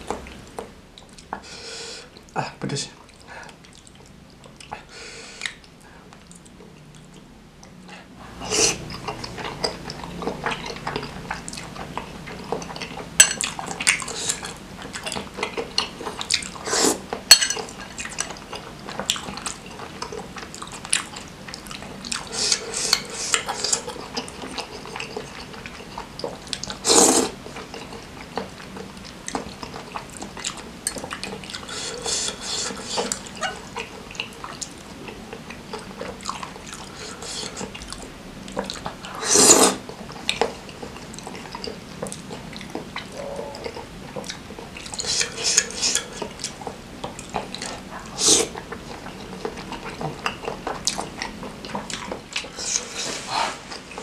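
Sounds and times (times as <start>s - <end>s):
chewing: 3.0s - 54.0s
slurping: 8.2s - 28.8s, 29.6s - 54.0s
fork clinking on glass bowl: 13.2s - 13.5s, 17.3s - 17.7s.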